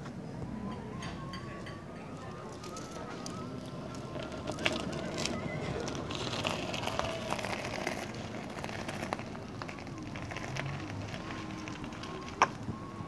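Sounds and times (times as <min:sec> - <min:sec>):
tyre rolling over gravel: 0:02.6 - 0:12.7.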